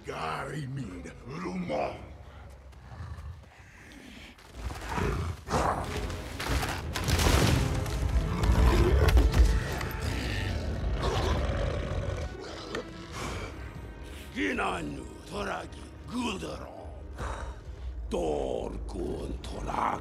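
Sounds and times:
film music: 0.0 - 3.1, 3.8 - 20.0
beasts growling and roaring: 4.6 - 6.0, 8.1 - 13.8.

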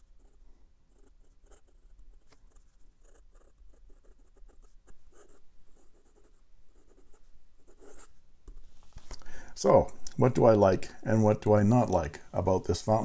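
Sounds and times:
pen nib scratching on paper: 0.0 - 8.1.

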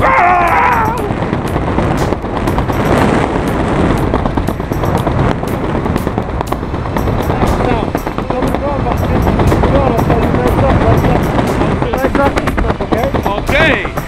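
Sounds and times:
person yelling: 0.0 - 1.1
wind buffeting microphone: 0.0 - 14.0.

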